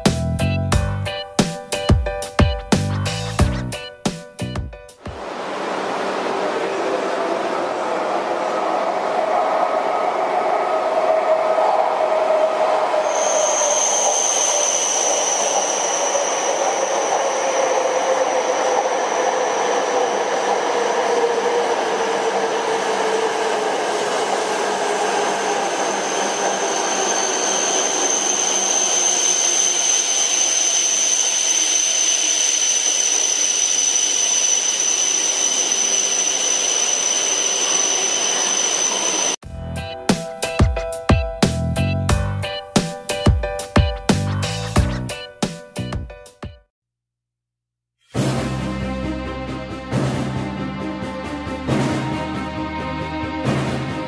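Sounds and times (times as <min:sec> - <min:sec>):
train rushing past: 0:05.0 - 0:40.5, 0:48.2 - 0:54.0
high steady whine: 0:05.1 - 0:39.4
low hum falling in pitch: 0:05.2 - 0:13.0.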